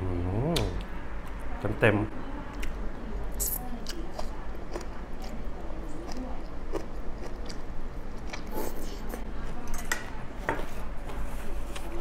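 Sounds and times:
person chewing food: 3.8s - 9.6s.

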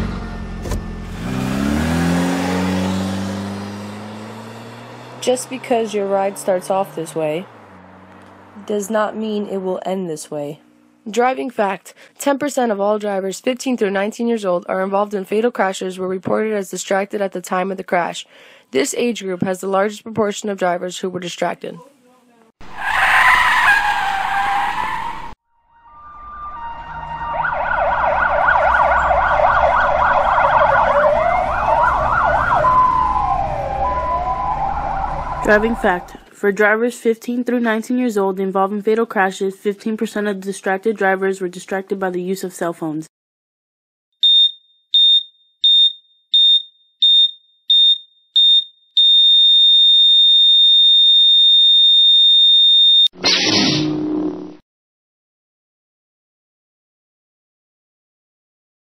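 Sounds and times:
siren wail: 22.6s - 36.2s
siren yelp: 26.1s - 36.2s
heart monitor beeping: 44.2s - 53.1s.

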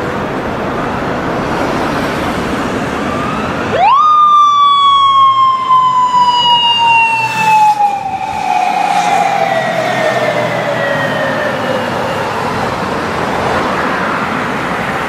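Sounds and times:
road traffic: 0.0s - 15.0s
motorcycle siren winding up: 3.2s - 12.9s.

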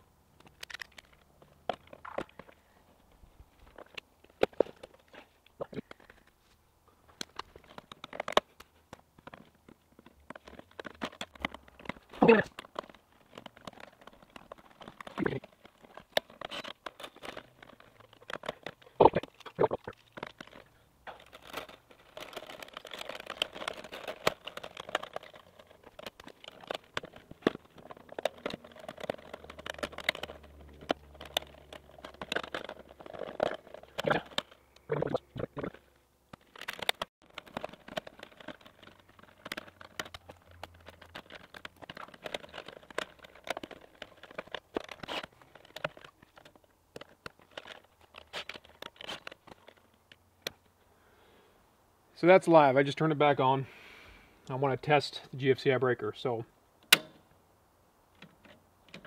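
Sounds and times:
tools clicking and scraping: 7.1s - 50.7s.

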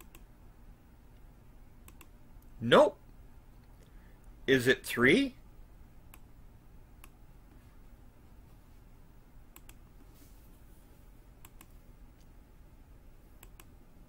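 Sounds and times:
computer mouse clicks: 0.0s - 0.3s, 1.8s - 2.2s, 9.5s - 9.8s, 11.4s - 11.8s, 13.4s - 13.8s
faint room hiss: 0.0s - 14.0s.

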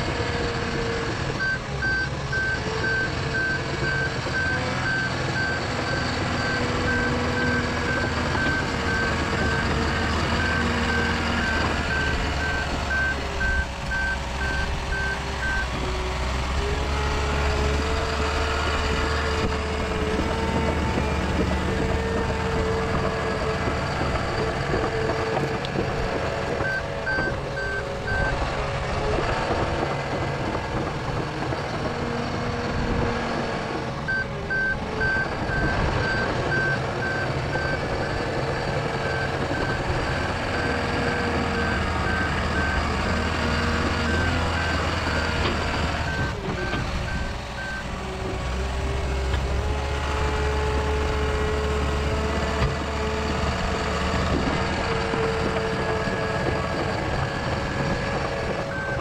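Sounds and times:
dozer engine running: 0.0s - 59.0s
reversing alarm beeping: 1.4s - 15.7s, 26.6s - 28.4s, 34.1s - 38.3s, 39.0s - 47.9s.

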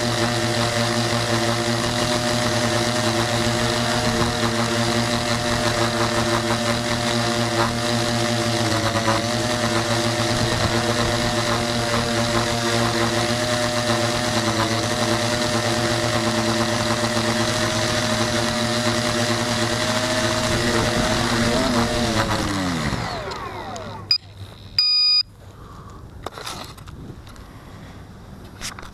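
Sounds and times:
drone motors whining: 0.0s - 25.2s
clicks: 23.2s - 25.2s
short electronic beep: 24.1s - 25.3s.

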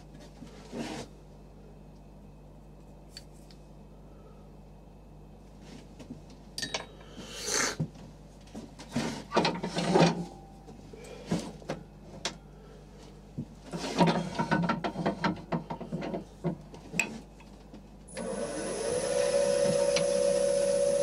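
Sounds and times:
faint steady hum: 0.0s - 21.0s
tools knocking and scraping: 13.7s - 17.3s.

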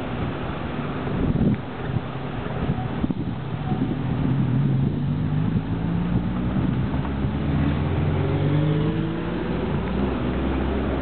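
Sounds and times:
low traffic rumble: 0.0s - 11.0s
vehicle accelerating: 4.0s - 11.0s.

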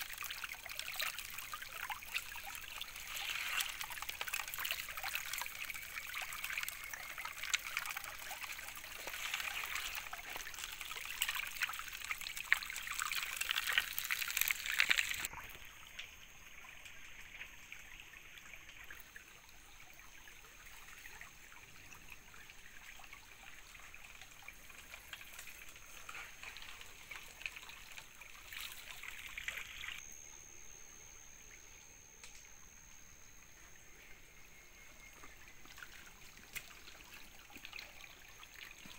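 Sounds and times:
stream water rushing over gravel: 0.0s - 15.4s
water trickling: 0.0s - 30.4s, 31.4s - 38.9s
faint high whine: 0.0s - 38.9s.

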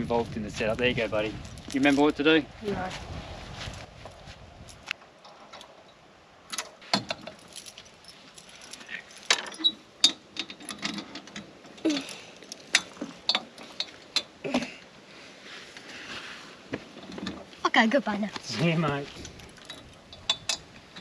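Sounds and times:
metal chain clinking and rattling: 6.9s - 14.3s, 18.6s - 21.0s.

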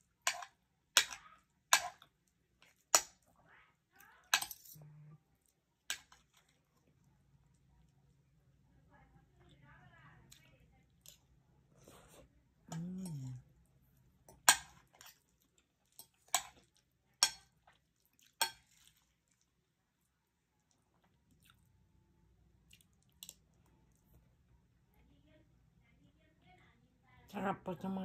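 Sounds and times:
faint chewing: 4.0s - 8.3s, 10.2s - 21.8s, 22.6s - 24.4s.

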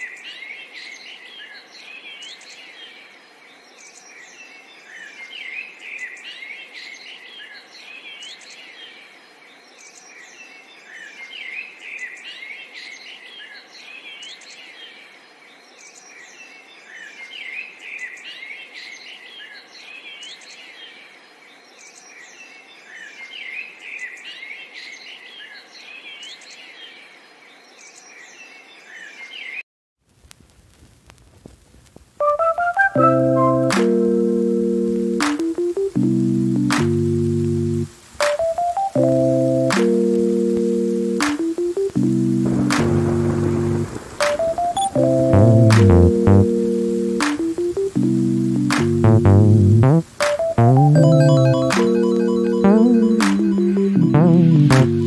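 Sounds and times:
small birds chirping and twittering: 0.0s - 29.6s, 42.5s - 45.7s.

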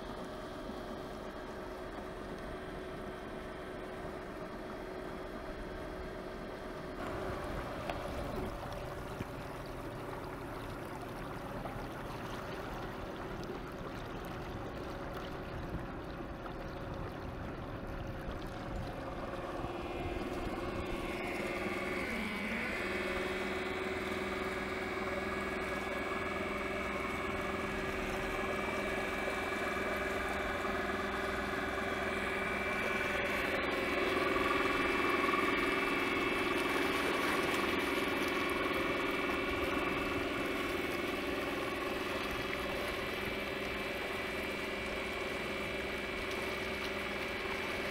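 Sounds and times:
water rushing and splashing: 6.9s - 47.9s
electric motor whine: 19.0s - 47.9s.

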